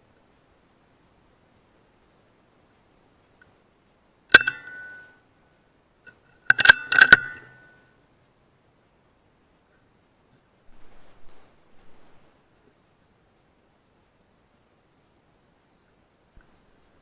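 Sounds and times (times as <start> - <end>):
air rifle firing: 4.3 - 5.0
rifle bolt metallic clicks: 4.3 - 5.0, 6.5 - 7.5.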